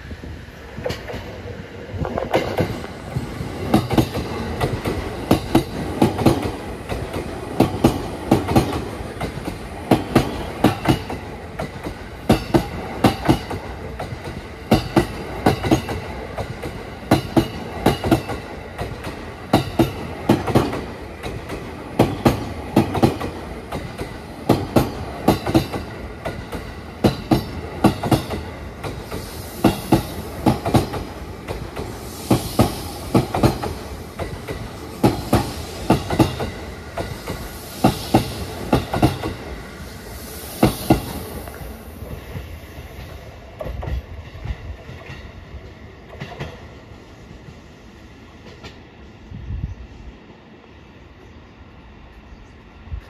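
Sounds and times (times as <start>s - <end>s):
rumble of train cars: 0.0s - 53.0s
train wheels clacking over rail joint: 3.6s - 39.5s, 40.6s - 45.4s.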